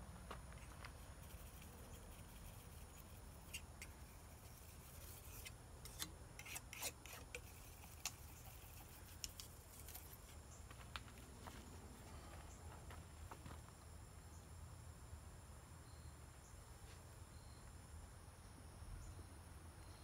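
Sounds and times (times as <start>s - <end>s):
low steady hum: 0.0s - 20.0s
painting knife clicks and scrapes: 0.9s - 10.3s.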